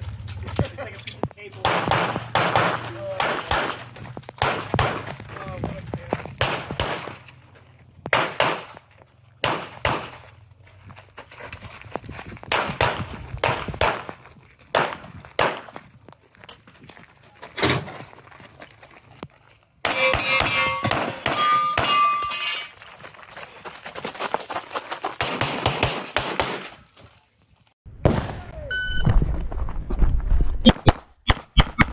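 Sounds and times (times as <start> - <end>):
pistol shots: 1.6 - 5.2, 6.4 - 7.2, 8.1 - 8.8, 9.4 - 10.2, 12.5 - 14.1, 14.7 - 15.7, 19.8 - 22.1, 25.2 - 26.8
steel targets ringing: 19.8 - 22.7.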